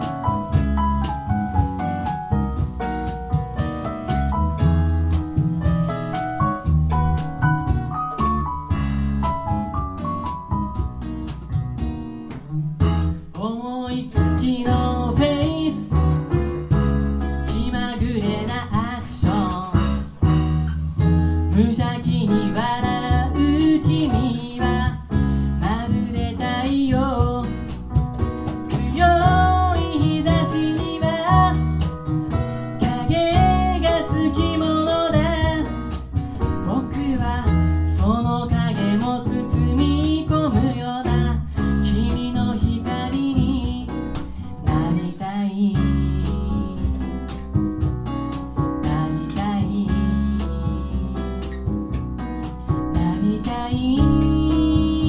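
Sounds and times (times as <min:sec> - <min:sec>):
bass: 0:00.0 - 0:55.0
cajon: 0:00.0 - 0:55.0
piano: 0:00.0 - 0:55.0
strummed acoustic guitar: 0:00.0 - 0:55.0
man singing: 0:13.3 - 0:16.1, 0:17.5 - 0:20.1, 0:21.5 - 0:27.7, 0:28.7 - 0:31.7, 0:32.8 - 0:35.7, 0:36.4 - 0:47.2, 0:48.8 - 0:51.6, 0:52.9 - 0:55.0.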